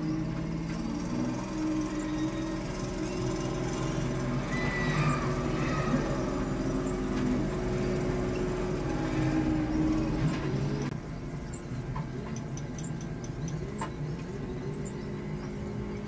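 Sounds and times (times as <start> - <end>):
low mechanical hum: 0.0 - 16.0
faint high chirps: 1.4 - 11.8.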